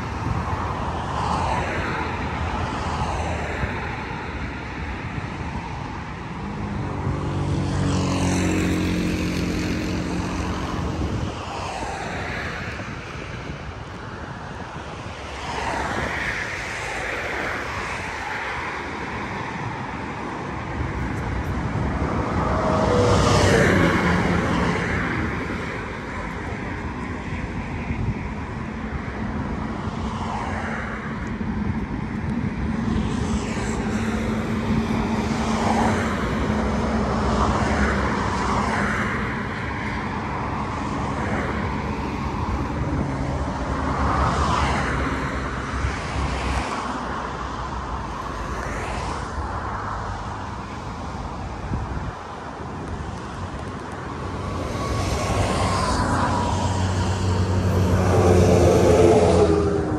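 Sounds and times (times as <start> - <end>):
vehicle passing loudly: 5.8 - 13.5, 15.4 - 27.4, 54.1 - 59.9.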